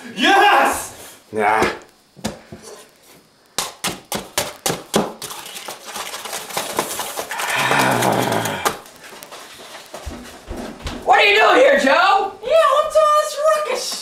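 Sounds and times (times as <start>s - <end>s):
utensil clattering in mixing bowl: 5.0s - 8.8s.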